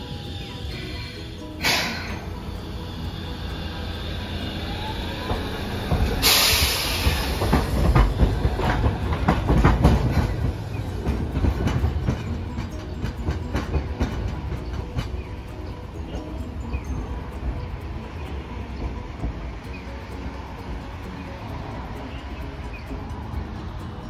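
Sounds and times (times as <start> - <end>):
streetcar wheels clicking over rail joints: 0.0 - 24.0
hiss: 0.1 - 9.5.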